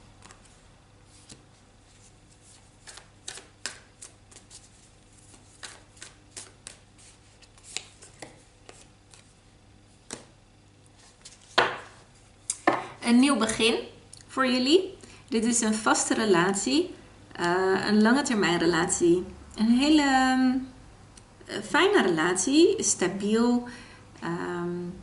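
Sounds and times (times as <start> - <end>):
cards tapped on wooden table: 11.5 - 11.9, 12.6 - 12.8.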